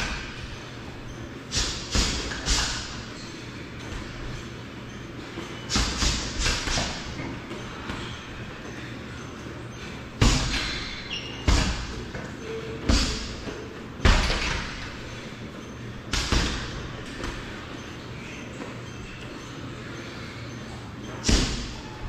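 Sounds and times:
punches and kicks on heavy bag: 1.6s - 3.0s, 5.7s - 7.1s, 10.2s - 10.8s, 11.5s - 12.0s, 12.9s - 14.8s, 16.1s - 16.8s, 21.3s - 21.8s.

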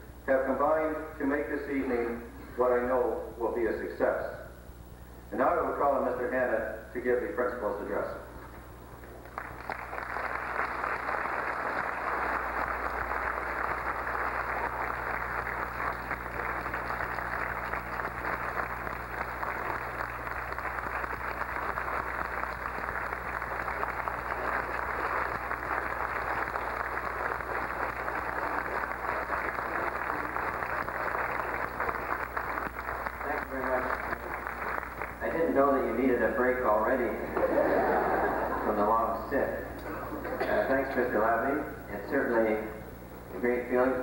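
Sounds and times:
faint low hum: 0.0s - 44.0s
large audience clapping: 9.0s - 38.9s.

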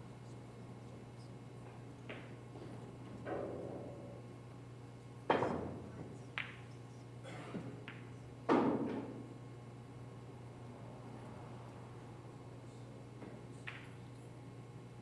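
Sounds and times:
pool balls clicking: 6.4s - 6.6s, 7.8s - 9.2s, 13.2s - 14.0s
cue striking ball: 7.8s - 9.3s.

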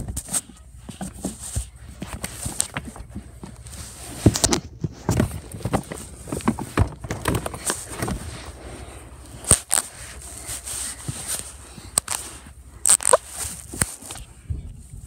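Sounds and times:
phone handling knocks and rustles: 0.9s - 8.4s.

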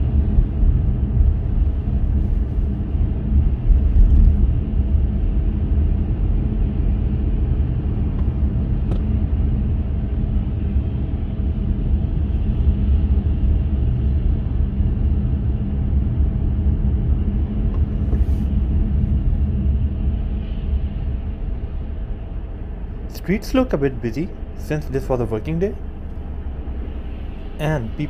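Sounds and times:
car road and engine rumble: 0.0s - 28.0s.

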